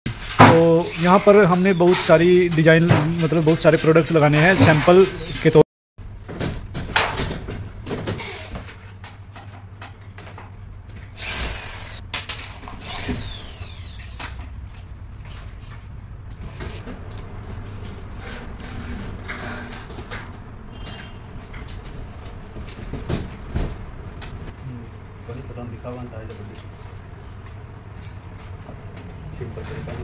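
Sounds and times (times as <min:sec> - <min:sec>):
panel scraping along metal frame: 0:17.7 - 0:20.1.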